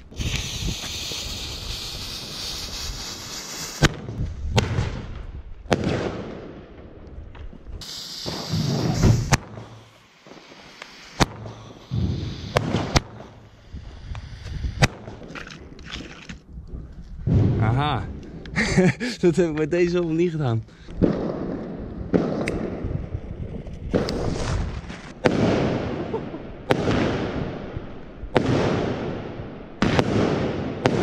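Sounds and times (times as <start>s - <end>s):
firework bangs: 0.0s - 6.7s, 7.8s - 15.4s, 17.2s - 17.8s, 21.0s - 31.0s
fuse hissing: 0.1s - 3.9s, 7.8s - 14.9s
low firework launch thump: 8.3s - 9.7s, 17.2s - 17.7s.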